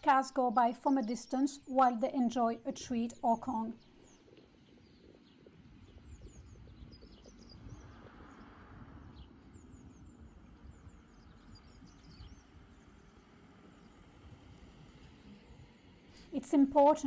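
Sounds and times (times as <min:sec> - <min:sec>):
distant traffic rumble: 0:00.0 - 0:04.2, 0:05.1 - 0:17.0
small birds chirping: 0:00.0 - 0:17.0
car passing: 0:07.6 - 0:09.4.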